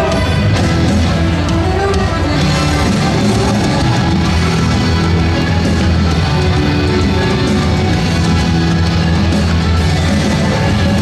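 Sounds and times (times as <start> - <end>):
heavy rock music with guitar: 0.0 - 11.0.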